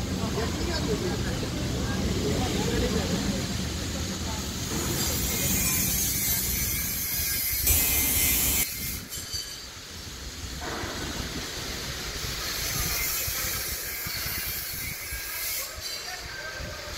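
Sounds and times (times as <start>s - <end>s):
hiss: 2.6s - 16.9s.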